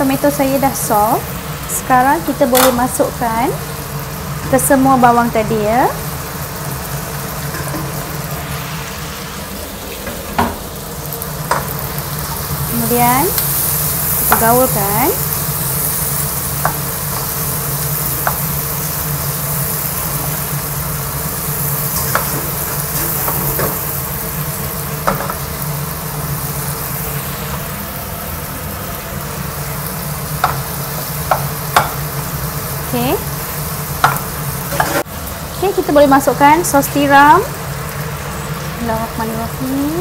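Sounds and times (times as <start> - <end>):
vegetables sizzling in oil: 0.0 - 40.0
wooden spatula knocking on pan: 31.3 - 32.0, 34.0 - 35.0.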